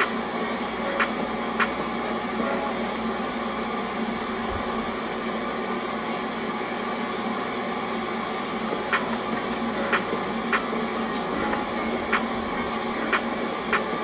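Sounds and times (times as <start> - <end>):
light ticking beat: 0.0 - 3.0, 8.7 - 14.0
steady hum and hiss: 0.0 - 14.0.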